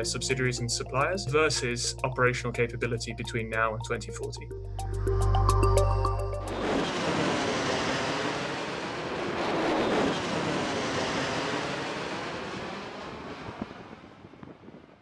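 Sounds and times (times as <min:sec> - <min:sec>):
jet aircraft passing: 0:05.3 - 0:15.0.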